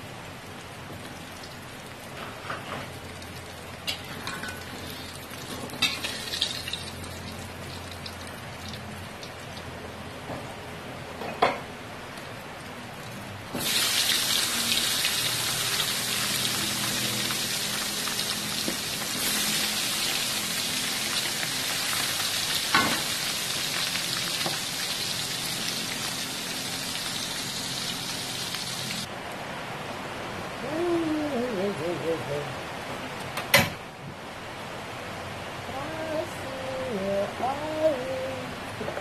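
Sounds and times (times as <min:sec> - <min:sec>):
fish sizzling in hot oil: 0:01.3 - 0:09.4, 0:13.5 - 0:29.1.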